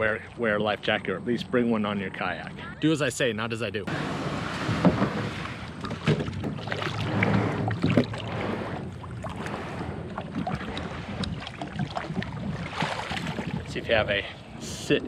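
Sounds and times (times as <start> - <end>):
water sloshing: 3.7 - 14.9
kayak hull scraping: 3.9 - 14.8
sharp knocks on kayak: 4.5 - 6.8.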